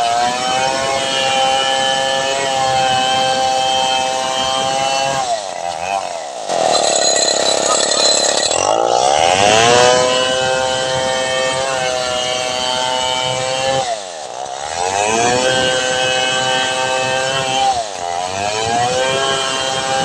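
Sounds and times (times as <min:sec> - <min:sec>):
chainsaw cutting a log: 0:00.0 - 0:20.0.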